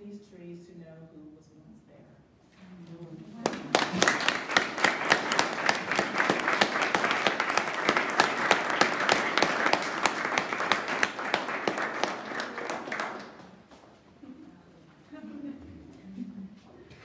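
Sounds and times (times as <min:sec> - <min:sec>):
audience applauding: 0:03.4 - 0:13.7.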